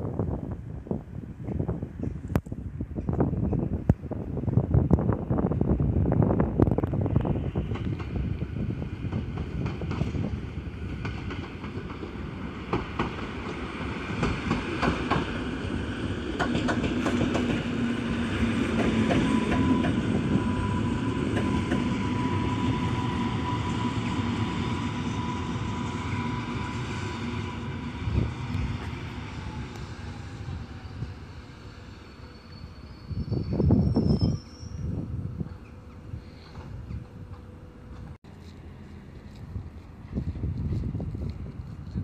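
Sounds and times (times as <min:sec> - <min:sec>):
train low hum: 0:00.0 - 0:42.0
wheels clicking over rail joints: 0:16.3 - 0:17.8.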